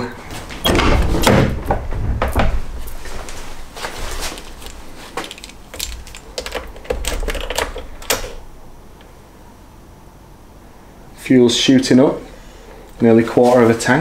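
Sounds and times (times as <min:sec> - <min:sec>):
handling knocks and clicks: 0:00.6 - 0:09.1
car keys jingling: 0:04.4 - 0:08.5.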